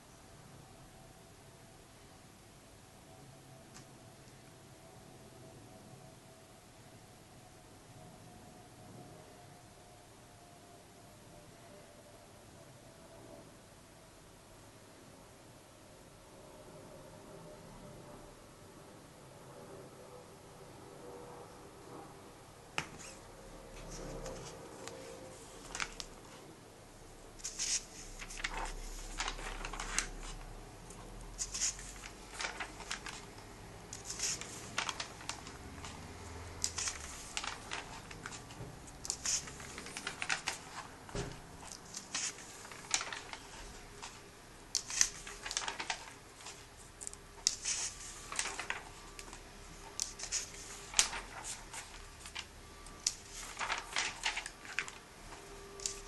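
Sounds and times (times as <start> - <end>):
paper rustling: 22.8 - 26.5, 27.4 - 56.0
comic book pages turning: 23.8 - 26.4, 27.4 - 44.2, 44.8 - 56.0.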